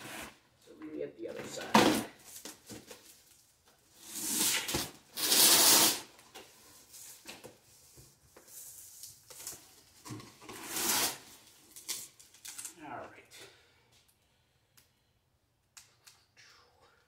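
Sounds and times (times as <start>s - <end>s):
cardboard scraping and rubbing: 10.3s - 11.3s.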